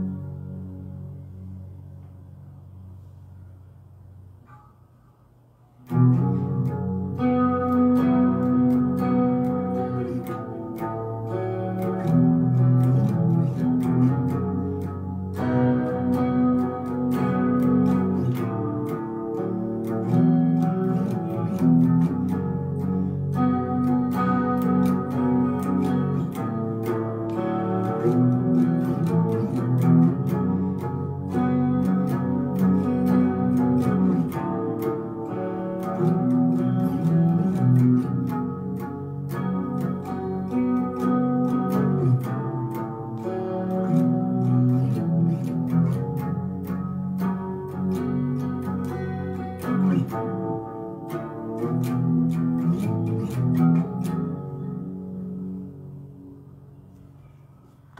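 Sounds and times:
electric guitar riffing: 0:00.0 - 0:02.6, 0:05.8 - 0:57.9.

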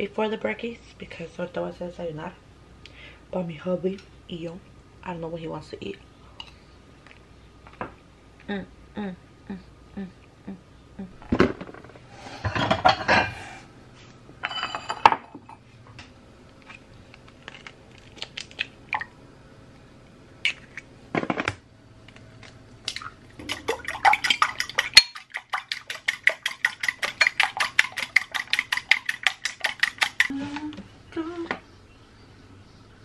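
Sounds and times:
dishes and cookware clattering: 0:12.4 - 0:13.4, 0:14.4 - 0:15.5
fork beating eggs in glass bowl: 0:23.4 - 0:30.4.

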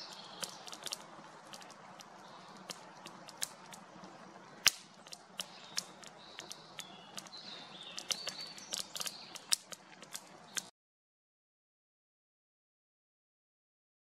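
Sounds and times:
campfire crackling and popping: 0:00.0 - 0:10.7
loud wood snap: 0:04.6 - 0:07.3, 0:08.0 - 0:10.7.

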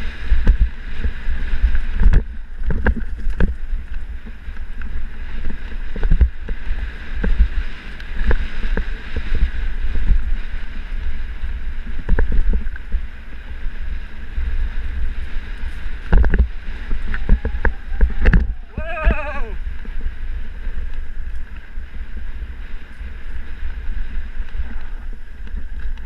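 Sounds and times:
wind buffeting microphone: 0:00.0 - 0:26.0
bike rattling clicks and knocks: 0:01.9 - 0:07.5.

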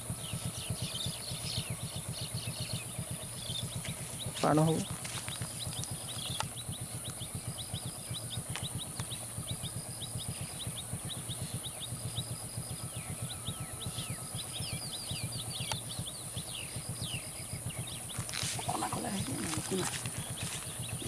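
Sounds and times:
birds chirping: 0:00.0 - 0:21.0
steady high whine: 0:00.0 - 0:21.0
vehicle engine idling: 0:00.0 - 0:21.0.

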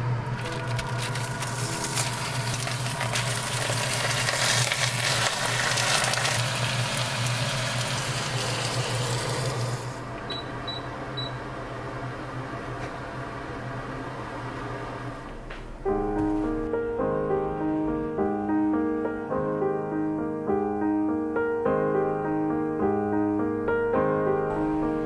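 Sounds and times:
cabbage sizzling in hot oil: 0:00.4 - 0:09.9
induction hob beeps: 0:10.2 - 0:11.4.

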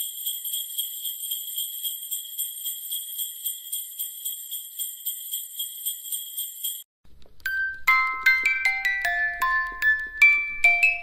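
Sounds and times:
sleigh bells jingling: 0:00.0 - 0:06.9.

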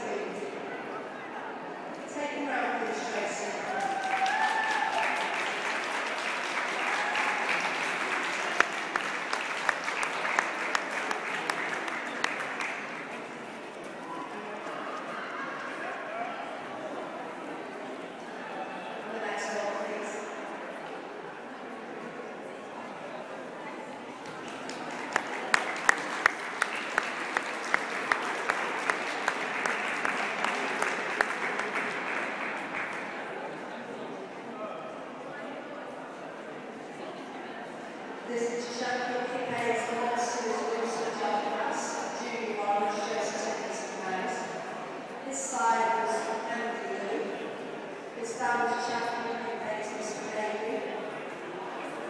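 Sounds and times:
crowd applauding: 0:03.7 - 0:15.8, 0:24.1 - 0:33.6
loud close claps: 0:24.2 - 0:33.2.

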